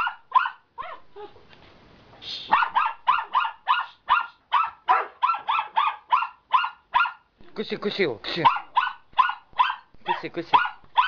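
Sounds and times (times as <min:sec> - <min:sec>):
dog barking rapidly: 0:00.0 - 0:01.0, 0:02.5 - 0:07.3, 0:08.4 - 0:11.0.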